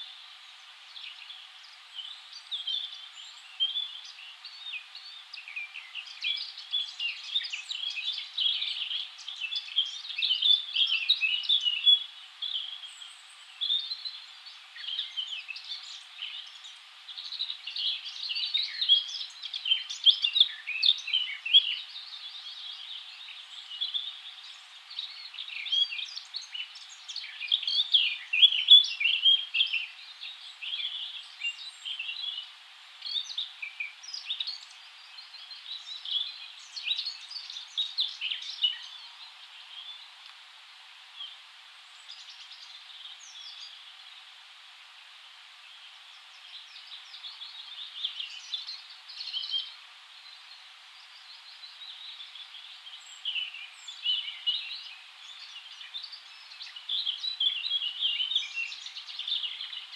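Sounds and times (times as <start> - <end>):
faint steady hiss: 0.0 - 59.9
songbirds chirping and singing: 0.0 - 59.9.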